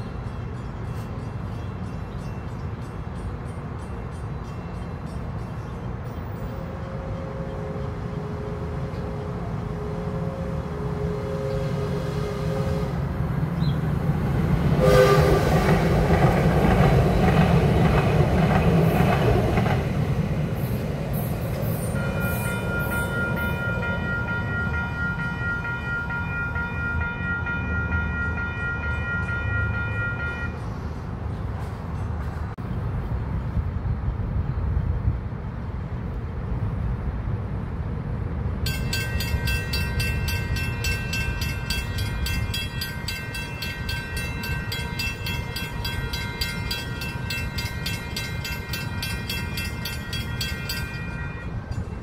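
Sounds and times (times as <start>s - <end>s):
crossing bell ringing: 0.0s - 7.2s, 21.8s - 31.0s, 38.6s - 52.0s
train horn blast: 6.6s - 13.3s, 14.7s - 15.9s, 21.8s - 30.7s, 47.8s - 51.8s
train wheels rumbling and clattering: 11.6s - 25.7s.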